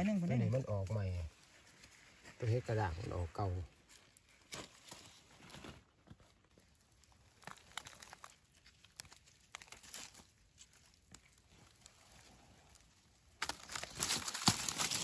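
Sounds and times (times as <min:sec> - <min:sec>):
dry leaves crackling and rustling: 0:00.0 - 0:15.0.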